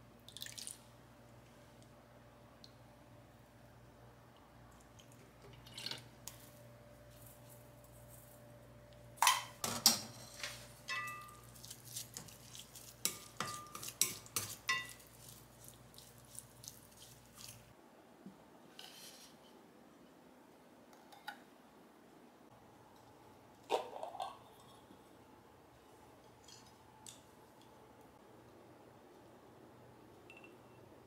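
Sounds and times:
dishes and cutlery clinking: 9.2s - 15.2s.

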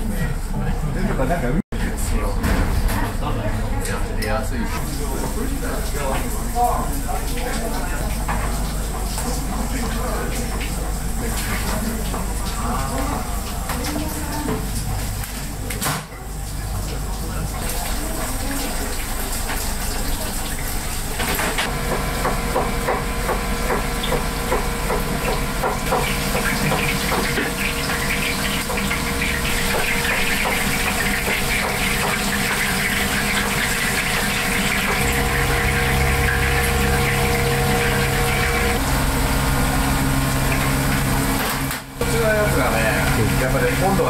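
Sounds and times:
steady machine hum: 0.0s - 44.0s
deeper hum: 1.7s - 15.7s, 16.6s - 44.0s
rushing water: 16.3s - 44.0s.

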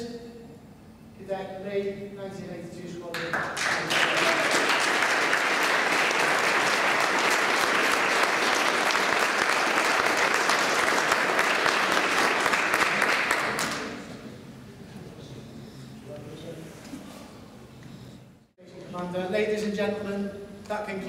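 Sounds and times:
audience applauding: 3.2s - 14.1s.

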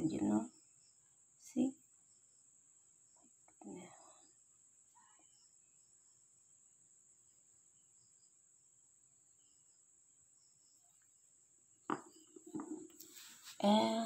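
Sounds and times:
faint high-pitched hiss: 0.0s - 14.0s
stones knocking: 11.9s - 12.9s.

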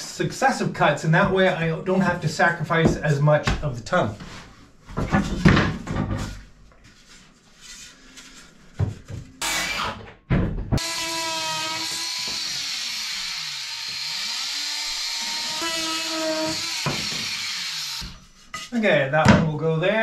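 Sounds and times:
cordless drill on wood: 10.8s - 18.2s.

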